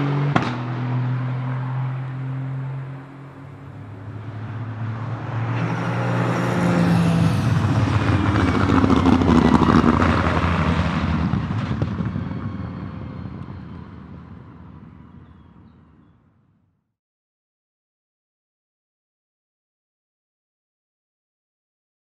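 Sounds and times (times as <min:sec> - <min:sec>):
race car passing by: 0:00.0 - 0:14.5.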